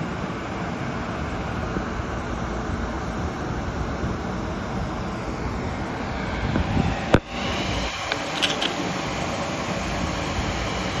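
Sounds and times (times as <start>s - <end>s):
steady rumbling: 0.0s - 11.0s
sharp click: 8.1s - 8.8s.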